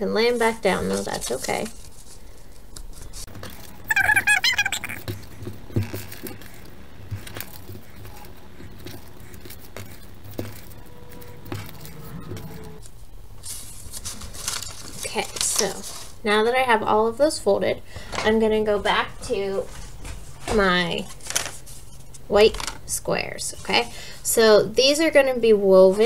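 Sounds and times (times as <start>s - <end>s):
paper rustling and tapping: 5.0s - 11.8s, 13.4s - 16.2s, 18.0s - 22.8s
high-pitched wavering sound: 10.8s - 12.8s.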